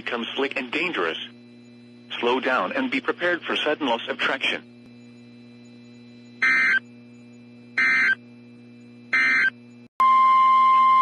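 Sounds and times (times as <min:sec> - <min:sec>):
steady warning alarm tone: 0:00.0 - 0:11.0
raspy digital data bursts: 0:00.1 - 0:06.9, 0:07.8 - 0:08.2.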